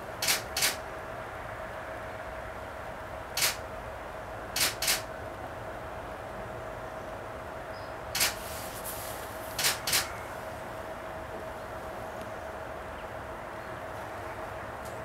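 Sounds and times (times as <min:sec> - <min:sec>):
faint steady hum: 0:00.0 - 0:15.0
camera shutter clicks: 0:00.2 - 0:00.8, 0:03.4 - 0:03.6, 0:04.6 - 0:05.1, 0:08.2 - 0:08.4, 0:09.6 - 0:10.1.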